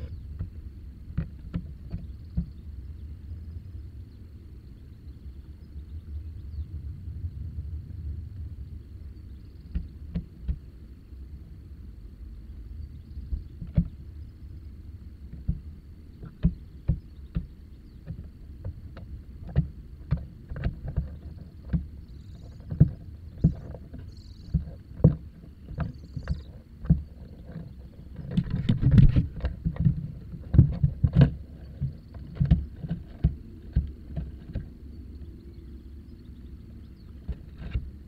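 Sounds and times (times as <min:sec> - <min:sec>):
faint high whine: 0:01.9 - 0:19.2
dull knocks and scrapes: 0:16.2 - 0:34.8, 0:37.1 - 0:37.9.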